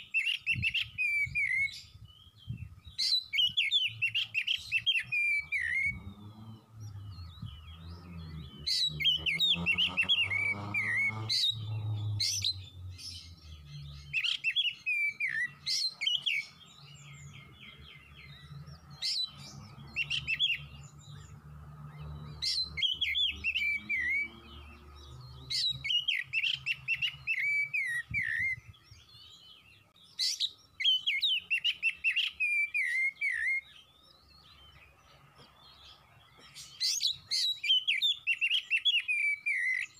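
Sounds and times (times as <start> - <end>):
bird singing whistled phrases: 0.0 - 6.1, 6.9 - 18.4, 22.4 - 24.5, 25.5 - 34.6, 36.7 - 39.9.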